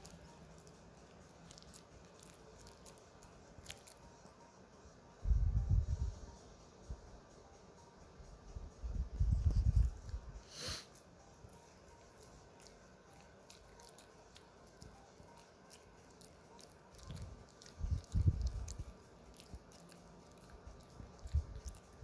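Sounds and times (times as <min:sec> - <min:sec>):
dog gnawing chew stick: 0:00.0 - 0:04.4, 0:10.9 - 0:22.0.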